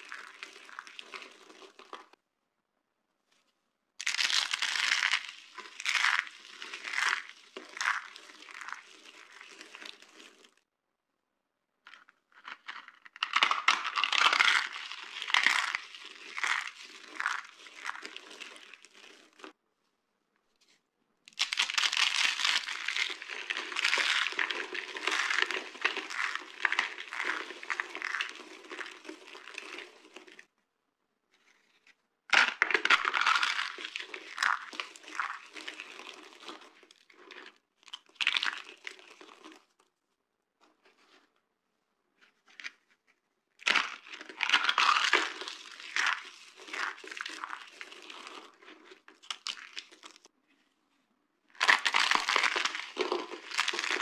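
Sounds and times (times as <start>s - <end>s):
soap chips crunching in hands: 0.0s - 2.2s, 4.0s - 10.6s, 11.9s - 19.6s, 21.3s - 30.5s, 32.3s - 39.8s, 43.6s - 50.3s, 51.5s - 54.0s.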